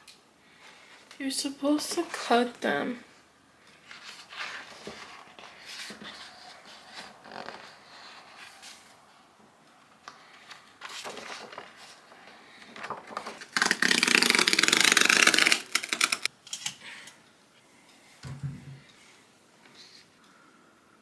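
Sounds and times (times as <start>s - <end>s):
paper rustling: 3.7s - 9.0s, 10.1s - 16.3s
paper ripping: 12.8s - 16.3s.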